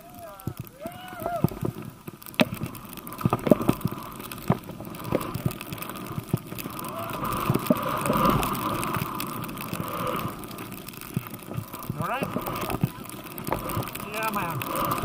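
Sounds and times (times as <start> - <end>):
skis rushing through snow: 0.0 - 15.0
sharp clicks and knocks: 0.4 - 6.7.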